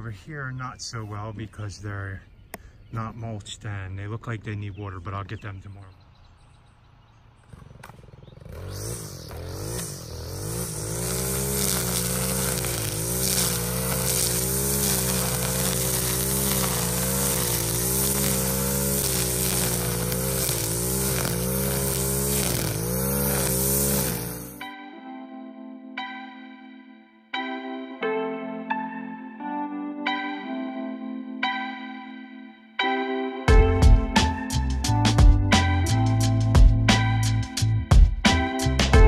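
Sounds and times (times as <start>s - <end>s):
string trimmer cutting grass: 7.3s - 24.7s.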